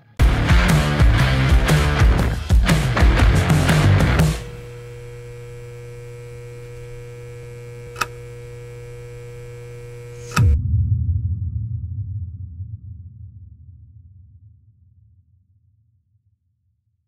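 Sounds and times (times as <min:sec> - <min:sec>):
low electrical hum: 0:04.4 - 0:10.4
short click: 0:07.8 - 0:08.2
deep rumbling boom: 0:10.6 - 0:15.0.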